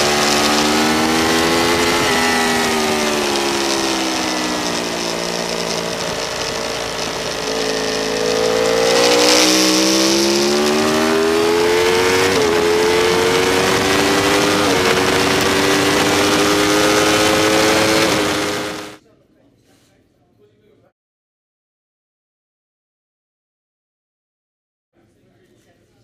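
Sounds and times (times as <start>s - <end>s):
engine gear shifts: 0.0s - 19.0s
motorcycle engine accelerating: 0.0s - 19.0s.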